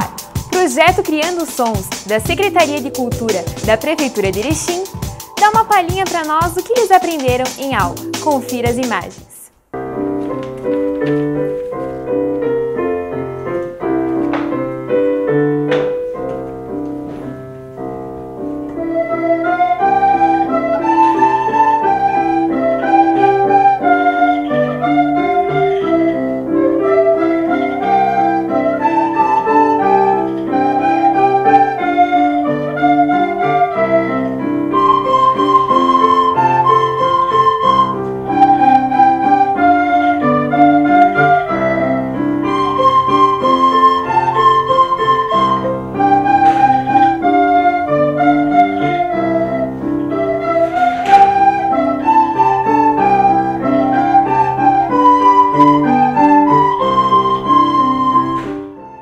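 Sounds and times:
keyboard accompaniment: 0.0s - 59.0s
children playing recorders: 18.7s - 59.0s.

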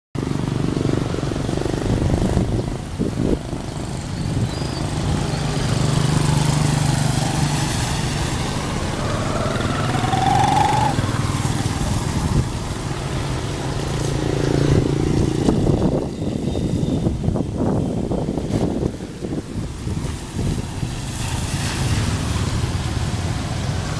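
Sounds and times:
motorbike and car engines: 0.2s - 23.9s
short rising whine: 8.7s - 11.2s.

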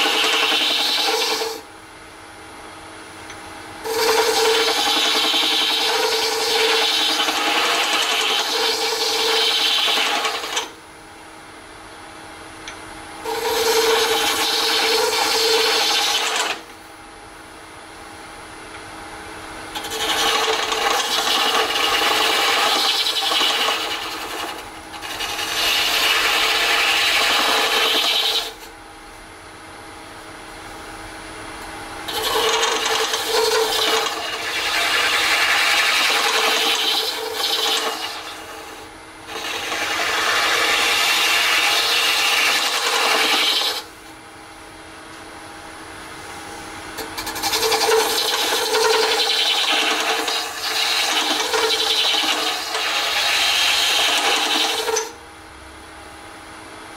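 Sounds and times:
tool rasping on lathe: 0.0s - 1.6s, 3.8s - 10.8s, 13.2s - 16.6s, 19.7s - 28.6s, 32.1s - 43.9s, 47.0s - 55.2s
lathe humming: 0.0s - 1.7s, 3.8s - 10.8s, 13.2s - 16.7s, 19.7s - 28.7s, 32.1s - 44.1s, 47.0s - 55.2s.

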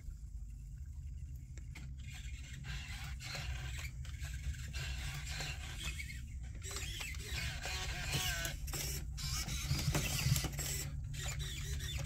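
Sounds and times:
steady low hum: 0.0s - 12.0s
servo motors whirring: 2.0s - 12.0s.

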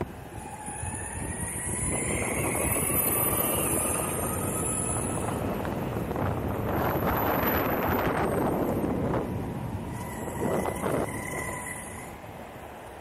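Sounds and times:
wind on microphone: 0.0s - 12.5s
wheels rolling on asphalt: 0.0s - 13.0s.

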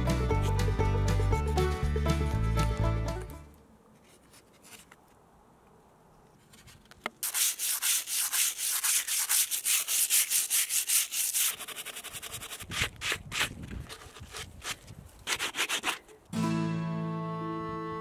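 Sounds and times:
sandpaper rubbing on wood: 7.2s - 16.1s.

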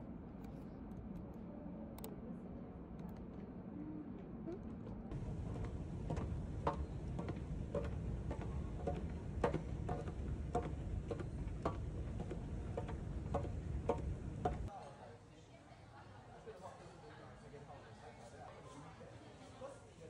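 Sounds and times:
escalator rumbling and ticking: 5.1s - 14.7s.

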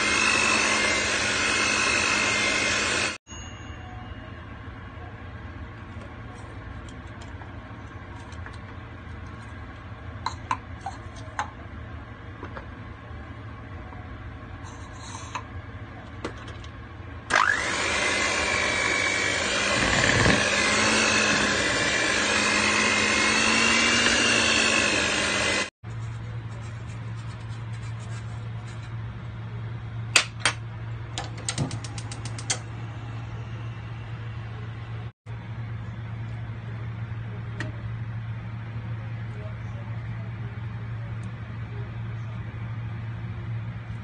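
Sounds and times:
electric hand mixer whining: 0.0s - 3.2s, 17.3s - 25.7s.

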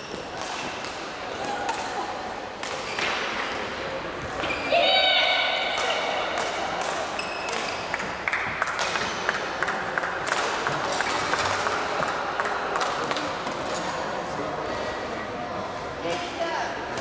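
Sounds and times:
people clapping: 5.8s - 13.6s.

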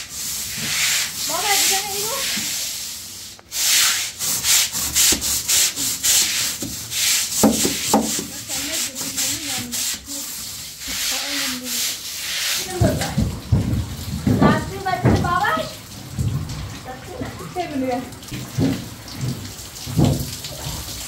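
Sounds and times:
broom scrubbing wet concrete: 0.0s - 15.8s.

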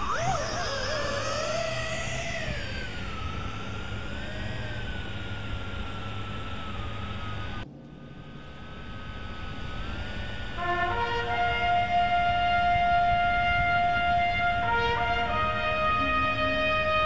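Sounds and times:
drone propellers whining: 0.0s - 17.0s
noisy hiss: 0.0s - 17.0s.

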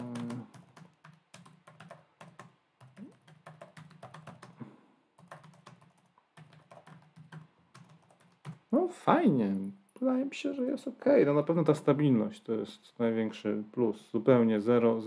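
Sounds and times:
fast typing on laptop keyboard: 0.0s - 4.6s, 5.2s - 8.8s.

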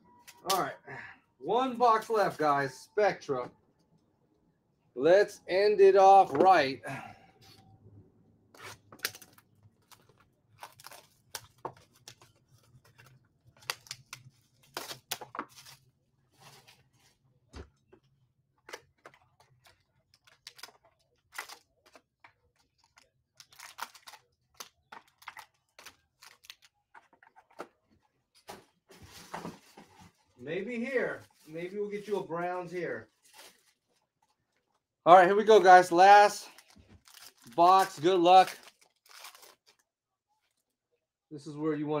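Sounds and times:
card packs tearing and crinkling: 8.6s - 15.9s, 19.6s - 22.1s, 22.8s - 26.8s, 36.3s - 39.8s.

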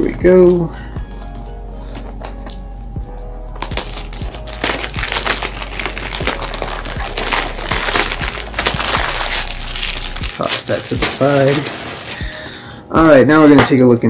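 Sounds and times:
plastic shrink wrap tearing: 3.6s - 12.6s.

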